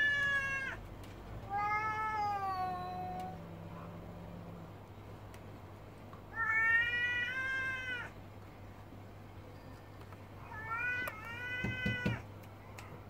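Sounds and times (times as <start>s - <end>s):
cat yowling: 0.0s - 0.8s, 1.5s - 3.9s, 6.3s - 8.2s, 10.5s - 12.3s.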